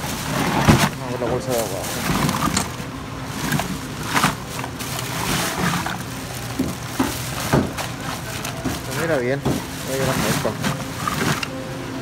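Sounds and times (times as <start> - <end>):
ice rattling: 0.0 - 11.7
plastic bags crinkling: 0.0 - 12.0.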